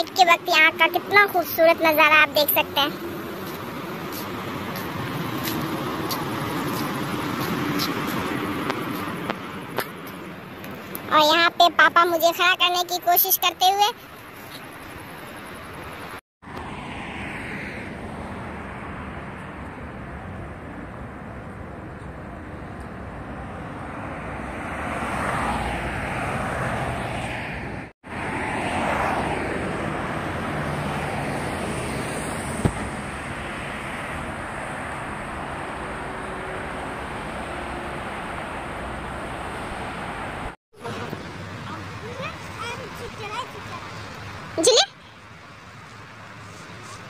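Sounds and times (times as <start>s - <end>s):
cars passing on road: 0.0s - 47.0s.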